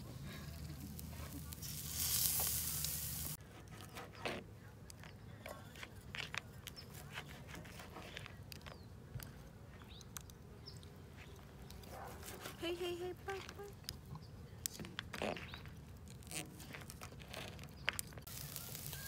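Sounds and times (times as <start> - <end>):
meat sizzling on a grill: 0.0 - 3.4, 18.2 - 19.0.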